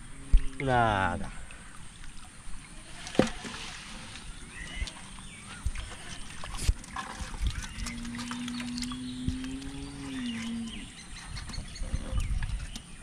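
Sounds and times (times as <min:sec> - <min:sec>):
birds chirping: 0:03.9 - 0:13.0
low drawn-out animal call: 0:07.5 - 0:11.1.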